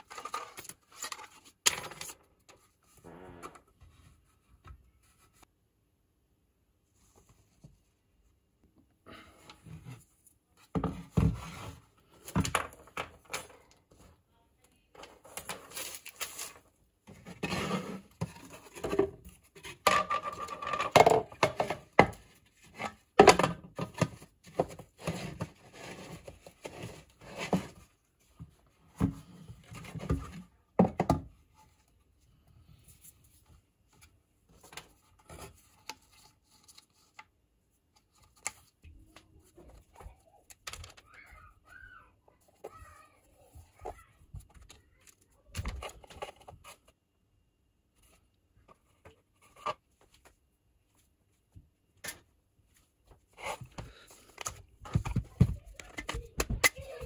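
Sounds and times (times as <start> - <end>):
plastic parts knocking and clicking: 18.2 - 25.6, 53.7 - 56.8.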